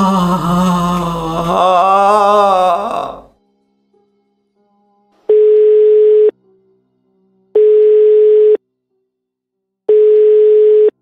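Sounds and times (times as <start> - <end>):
telephone line beep: 5.3 - 6.3, 7.6 - 8.6, 9.9 - 11.0.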